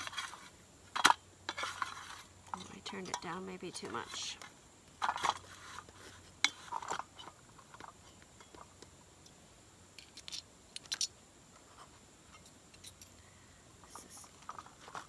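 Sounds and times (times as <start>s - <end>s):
metal spatula scraping skillet: 0.0s - 8.2s.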